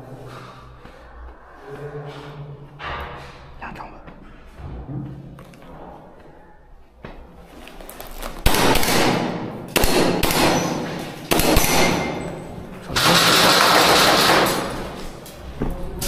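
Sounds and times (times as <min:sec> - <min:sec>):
airsoft gun full-auto bursts: 0:13.0 - 0:14.7.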